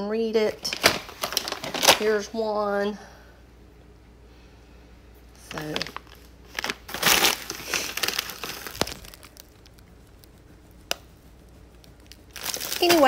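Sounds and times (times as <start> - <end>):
plastic bags crinkling: 0.6 - 2.4, 5.4 - 13.0.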